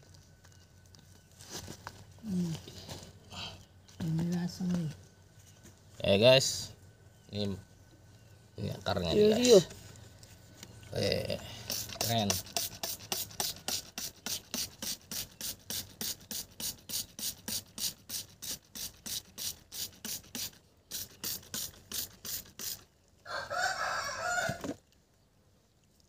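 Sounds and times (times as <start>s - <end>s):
spray bottle squirts: 11.6s - 22.9s.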